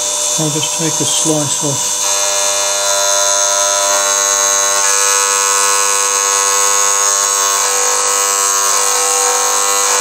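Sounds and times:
high-pitched spindle motor whine: 0:00.0 - 0:10.0.

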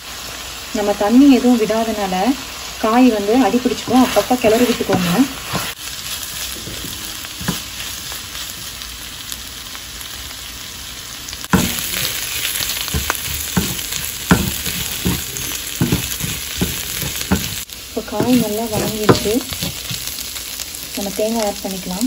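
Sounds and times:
vegetables sizzling in oil: 0:00.0 - 0:22.0
wooden spatula scraping a pan: 0:03.5 - 0:08.2, 0:11.5 - 0:20.3.

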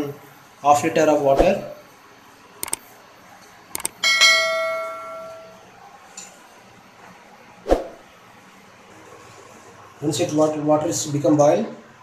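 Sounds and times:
mouse clicks: 0:02.6 - 0:02.8, 0:03.8 - 0:04.0.

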